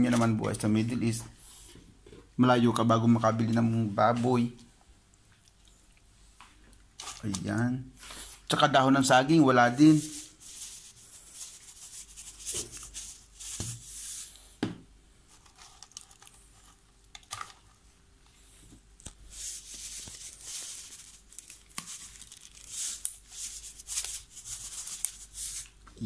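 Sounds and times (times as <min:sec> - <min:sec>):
kitchen rustling and scraping: 0:07.0 - 0:07.6, 0:15.3 - 0:17.9.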